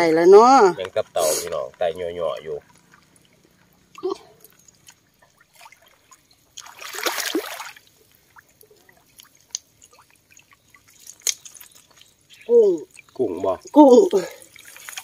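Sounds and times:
water dripping: 0.0s - 15.0s
water splashing and trickling: 0.0s - 15.0s
sharp splash or knock: 6.6s - 7.8s.

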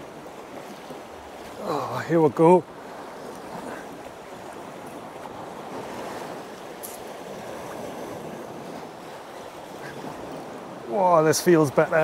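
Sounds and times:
waves washing against rocks: 0.0s - 12.0s
wind buffeting microphone: 2.7s - 11.0s.

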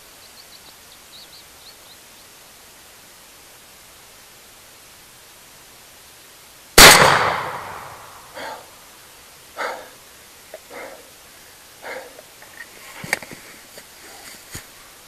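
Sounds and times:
shotgun blast with echo: 6.8s - 8.4s.

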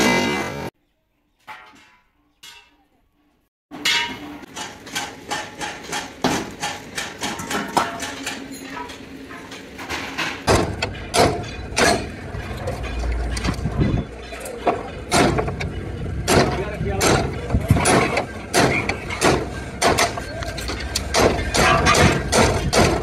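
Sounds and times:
hammer striking truck bed: 3.8s - 8.4s, 10.5s - 12.3s, 14.7s - 23.0s.

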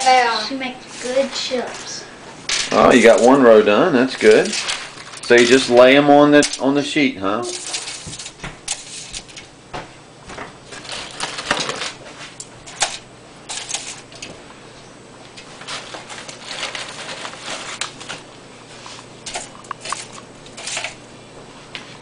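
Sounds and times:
aluminium foil crinkling: 2.5s - 6.7s, 7.4s - 9.5s, 10.6s - 14.4s, 15.3s - 21.0s
chips rustling: 2.5s - 6.8s, 7.5s - 9.5s, 10.7s - 14.4s, 15.4s - 21.0s.

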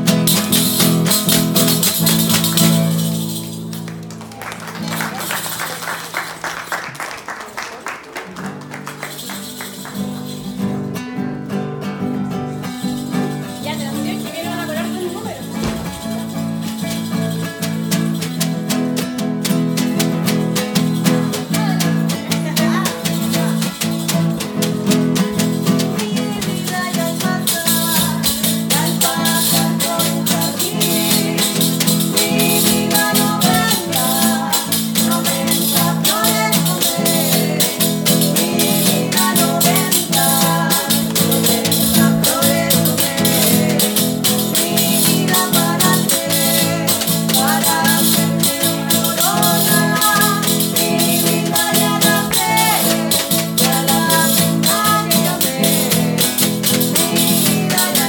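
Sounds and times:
tambourine jingles: 0.0s - 3.9s, 8.9s - 10.9s, 12.5s - 58.0s
strummed acoustic guitar: 0.0s - 4.2s, 8.4s - 58.0s
women singing together: 25.7s - 58.0s.

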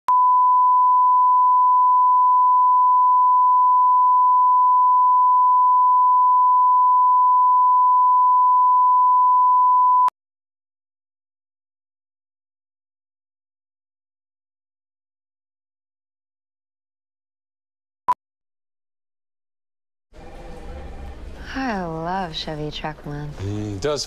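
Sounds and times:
sine wave reference tone: 0.1s - 10.1s.

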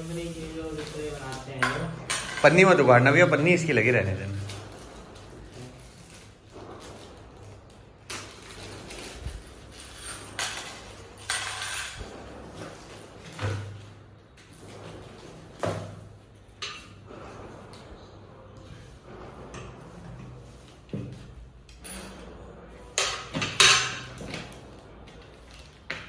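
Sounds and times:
plastic bag rustling: 0.0s - 1.6s, 2.5s - 11.2s
metal bolts clinking on tile: 9.0s - 12.1s.

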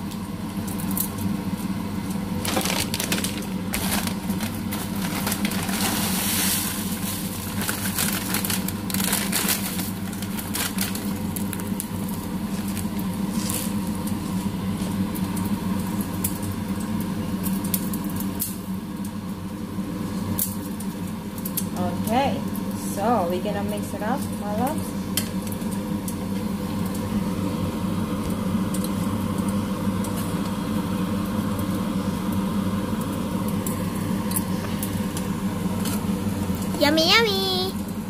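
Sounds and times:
steady low hum: 0.0s - 38.0s
dry noodles crackling and crunching: 0.4s - 18.6s.

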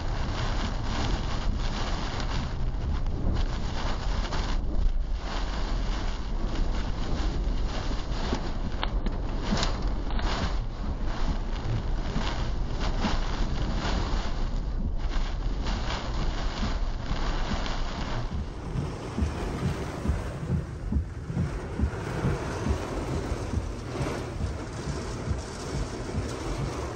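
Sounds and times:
wind and rain battering car: 0.0s - 26.9s.

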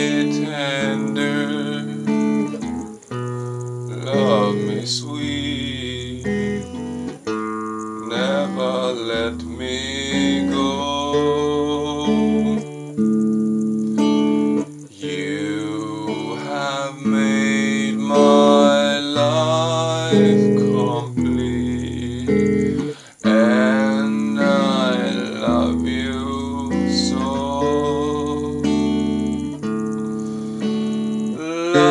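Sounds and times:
man singing: 0.0s - 2.6s, 3.9s - 7.0s, 8.0s - 12.9s, 14.8s - 29.6s, 31.3s - 31.9s
electric guitar strummed chords: 0.0s - 31.9s.

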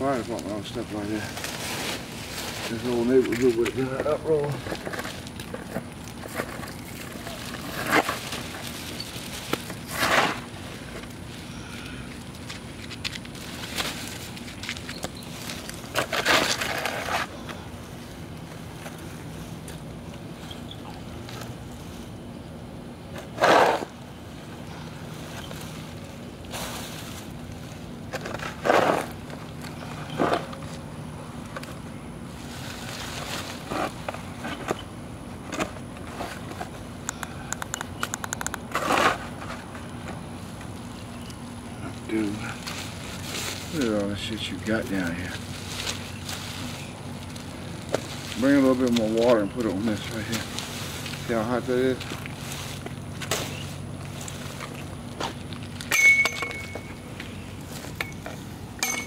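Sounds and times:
plastic bag rustling: 0.0s - 11.5s, 12.3s - 20.5s, 24.9s - 29.6s, 32.3s - 34.7s, 42.2s - 55.8s
debris scraping on pavement: 0.0s - 22.3s, 23.1s - 24.2s, 24.8s - 36.9s, 38.6s - 59.0s
burnt clothing crunching: 38.6s - 55.9s.

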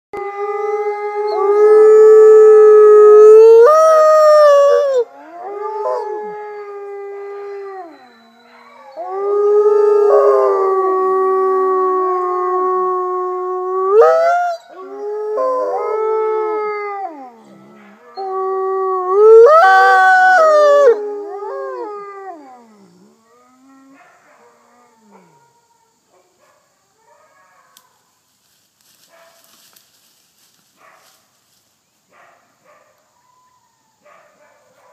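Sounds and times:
wolf howling: 0.2s - 26.0s
wolves howling in chorus: 0.2s - 26.0s.

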